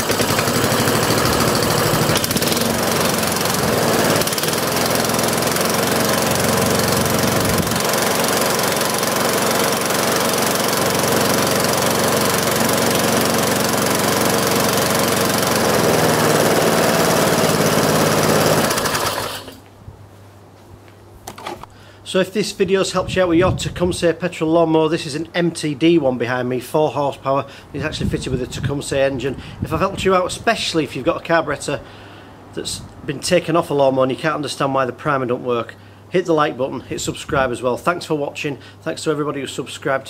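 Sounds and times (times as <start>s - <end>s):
lawnmower engine running: 0.0s - 19.7s.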